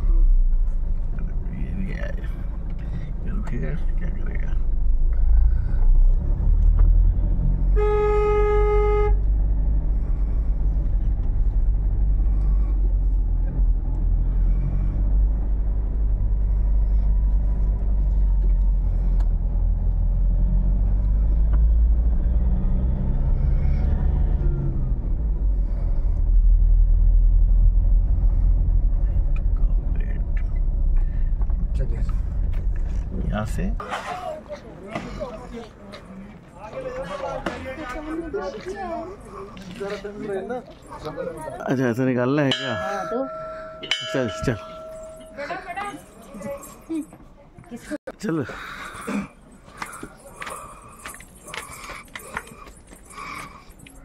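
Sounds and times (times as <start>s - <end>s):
vehicle engine and road rumble: 0.0s - 54.0s
vehicle horn blast: 7.7s - 9.3s.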